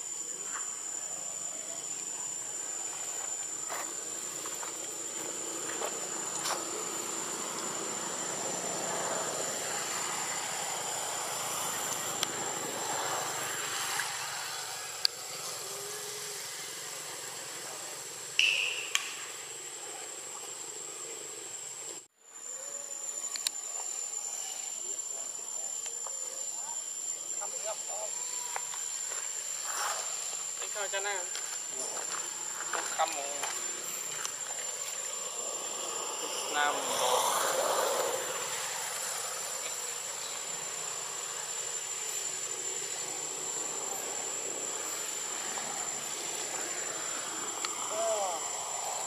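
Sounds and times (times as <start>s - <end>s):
high-pitched insect drone: 0.0s - 49.0s
short sharp chirp: 18.4s - 19.2s.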